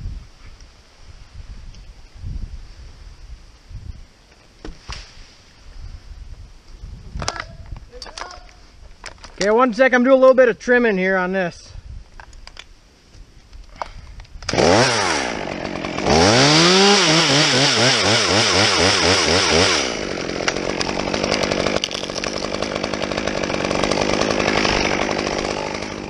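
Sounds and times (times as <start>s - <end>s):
chainsaw revving and idling: 14.5s - 26.0s.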